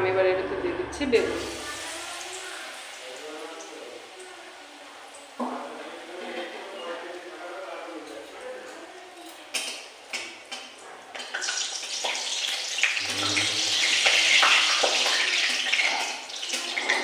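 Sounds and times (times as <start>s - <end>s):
slices deep-frying in oil: 1.3s - 17.0s.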